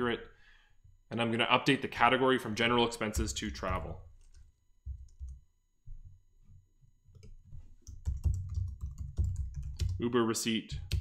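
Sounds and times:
typing on computer keyboard: 0:07.1 - 0:10.0.

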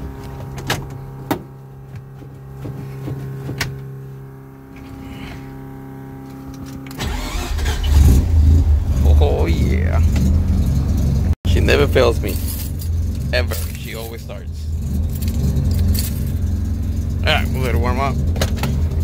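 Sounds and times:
car engine starting and running: 0:00.0 - 0:19.0
steady hum: 0:00.0 - 0:19.0.

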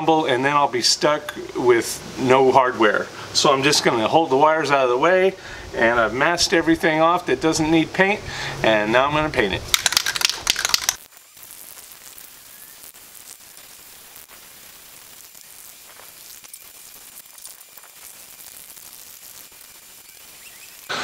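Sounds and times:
spray can rattling: 0:09.6 - 0:12.3, 0:13.1 - 0:20.9
hiss of paint spraying: 0:10.2 - 0:21.0.

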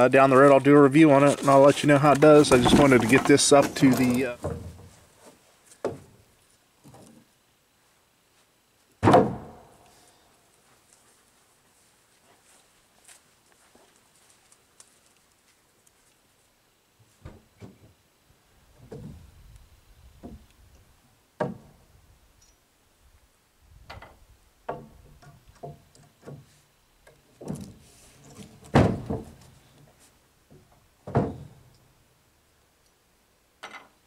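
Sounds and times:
wooden boards knocking: 0:02.2 - 0:04.8, 0:28.7 - 0:29.4, 0:31.0 - 0:31.6.

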